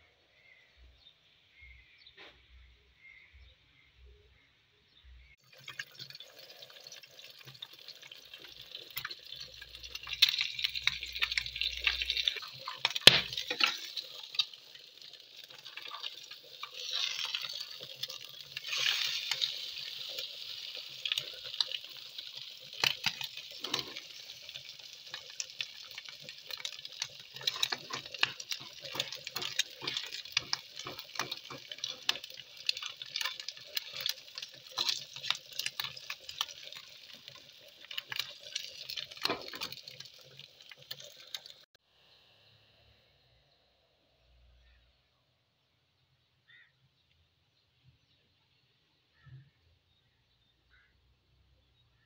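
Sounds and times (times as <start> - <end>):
egg sizzling in oil: 5.4 - 41.8
metal spatula scraping a pan: 11.8 - 14.4, 16.6 - 20.0, 27.3 - 39.8.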